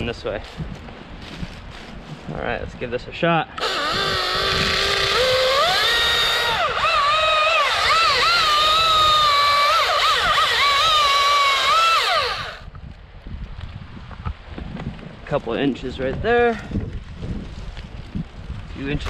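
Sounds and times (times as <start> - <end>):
electric chainsaw whining: 3.6 - 12.7.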